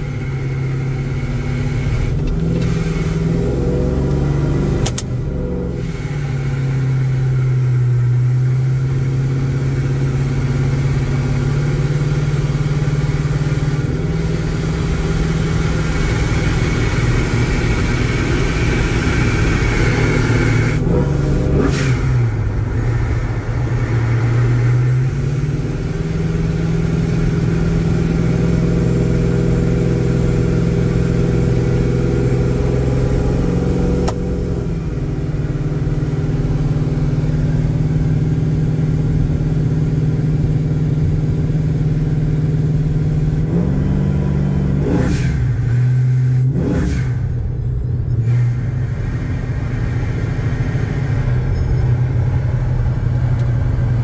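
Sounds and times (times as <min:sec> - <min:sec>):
car engine running: 0:00.0 - 0:54.0
click: 0:04.8 - 0:05.1.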